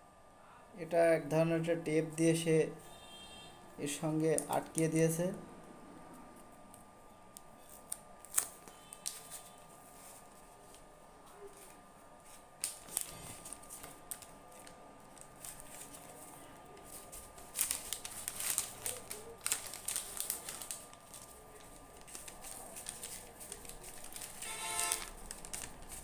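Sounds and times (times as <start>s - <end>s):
wrapping paper crinkling: 7.6s - 26.0s.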